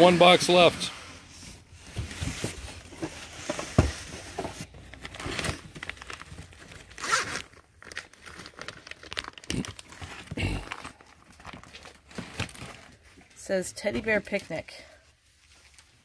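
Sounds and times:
plastic bag crinkling: 4.7 - 13.4.

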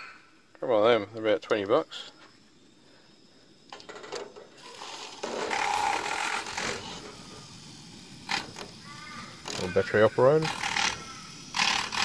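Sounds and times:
milk frother whirring: 4.4 - 12.0.

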